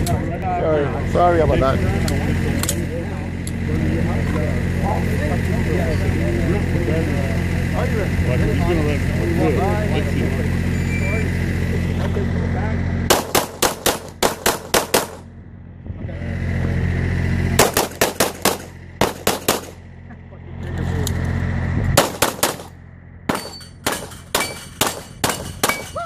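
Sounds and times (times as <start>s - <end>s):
steady low hum: 0.0s - 26.0s
rapid pistol fire: 13.1s - 15.2s, 17.6s - 19.8s, 22.0s - 22.7s, 23.8s - 26.0s.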